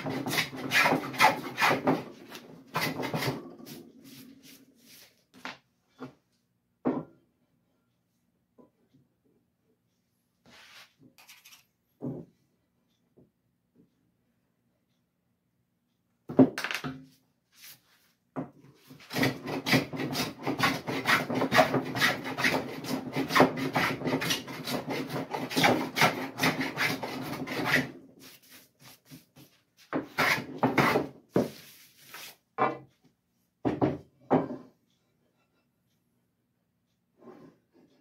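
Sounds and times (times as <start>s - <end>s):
hand plane shaving wood: 0.0s - 5.1s, 18.8s - 32.3s.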